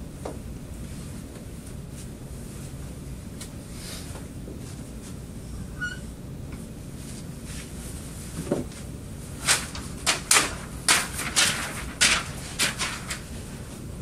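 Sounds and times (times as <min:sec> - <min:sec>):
paper rustling and flapping: 0:08.3 - 0:14.0.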